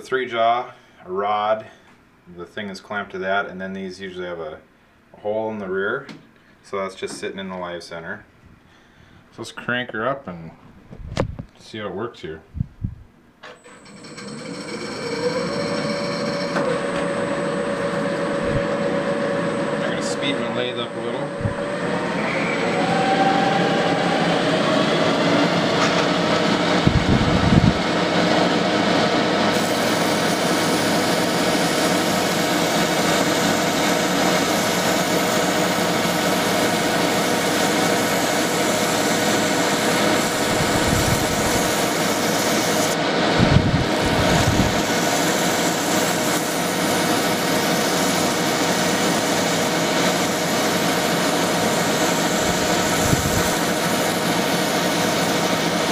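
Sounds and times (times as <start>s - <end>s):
small metal lathe running: 13.6s - 23.0s, 23.6s - 43.1s, 43.8s - 55.9s
emery cloth hissing on steel: 29.6s - 43.0s, 44.3s - 55.9s.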